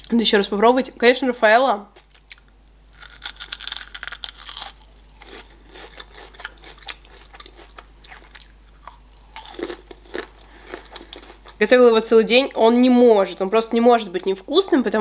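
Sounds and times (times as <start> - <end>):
candy crunching: 2.0 - 11.7
soft chewing clicks: 4.5 - 11.6.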